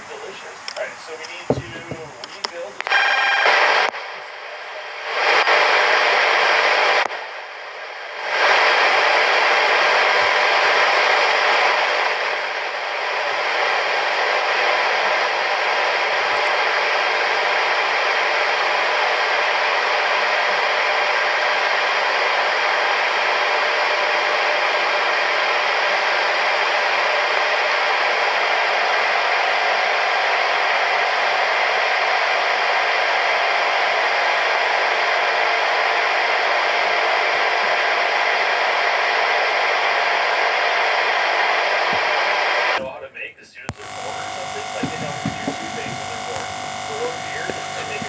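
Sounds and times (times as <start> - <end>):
faint steady tones: 0.0 - 3.4, 43.0 - 48.0
television static hiss: 0.0 - 48.0.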